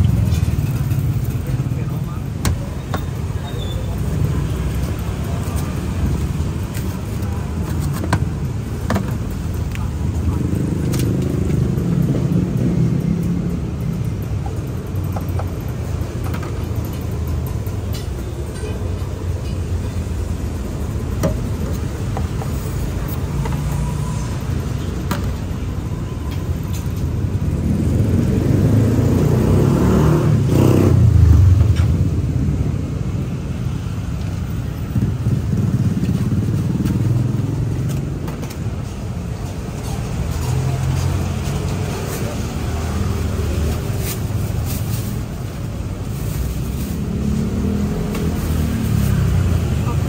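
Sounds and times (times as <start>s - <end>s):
cars and motorbikes passing: 0.0s - 50.0s
vehicle passing loudly: 27.6s - 33.1s.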